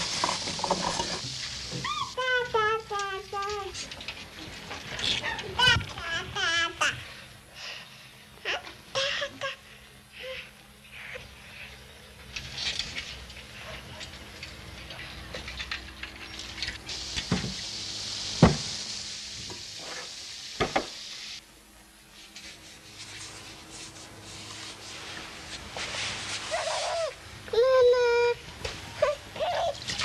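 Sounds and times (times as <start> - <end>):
steaming pot hissing: 0.0 - 2.6, 16.5 - 21.4.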